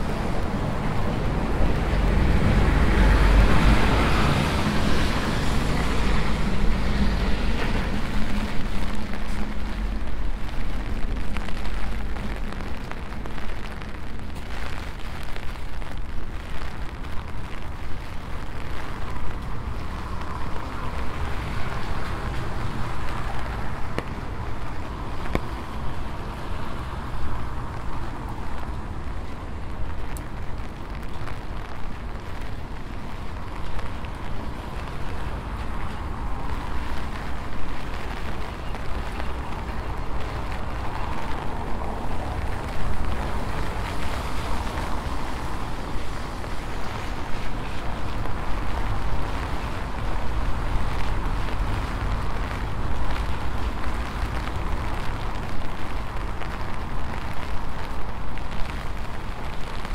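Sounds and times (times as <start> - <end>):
vehicle passing: 0.0 - 11.0
rain on wet street: 0.0 - 59.9.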